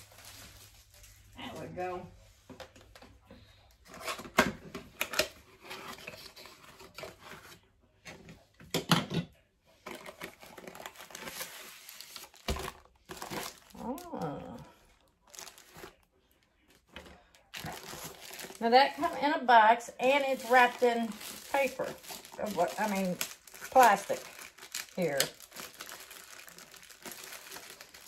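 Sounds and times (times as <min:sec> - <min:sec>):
plastic wrapping rustling: 0:00.0 - 0:03.0, 0:09.8 - 0:28.0.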